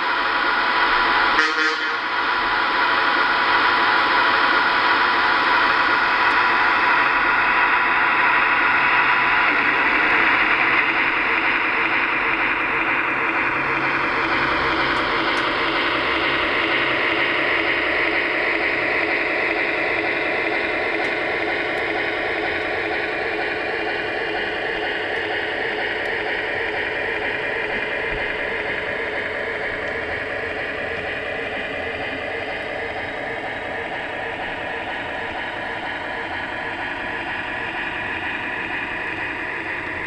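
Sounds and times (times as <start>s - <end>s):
model train rolling on track: 0.0s - 40.0s
model train motor whine: 0.1s - 40.0s.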